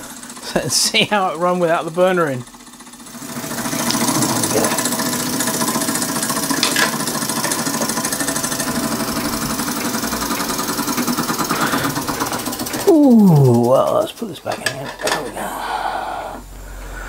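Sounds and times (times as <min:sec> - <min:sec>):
model steam engine running: 0:00.0 - 0:12.9.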